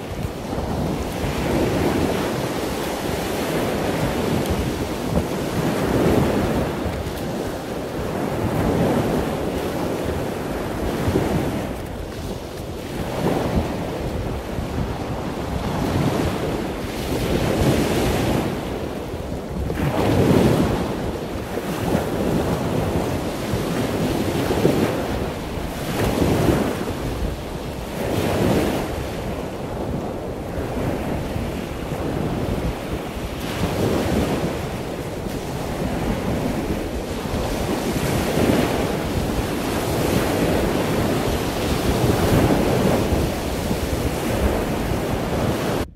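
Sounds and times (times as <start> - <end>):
ocean surf washing: 0.0 - 45.9
wind buffeting microphone: 0.0 - 45.9.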